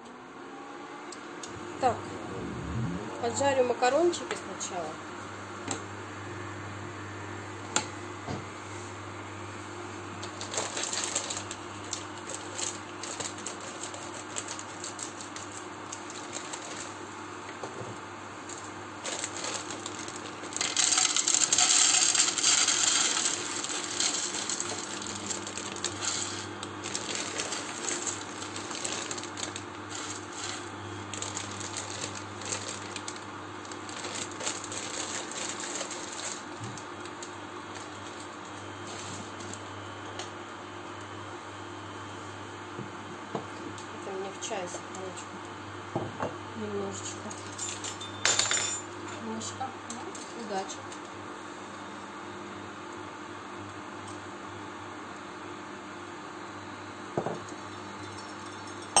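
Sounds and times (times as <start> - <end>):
low steady hum: 0.8 - 8.2
dry pasta clattering into a pan: 19.0 - 26.3.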